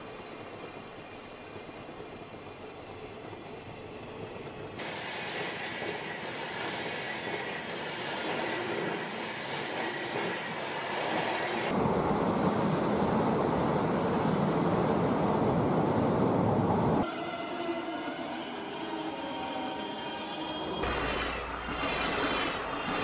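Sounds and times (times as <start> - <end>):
model trains rolling on track: 17.0 - 23.0.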